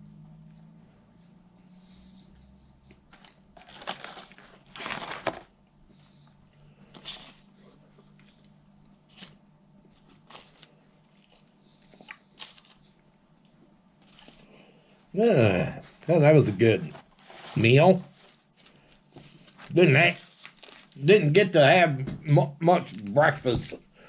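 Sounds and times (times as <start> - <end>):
chewing fries: 2.8 - 14.6
paper wrapper crinkling: 3.1 - 5.6, 16.7 - 21.1.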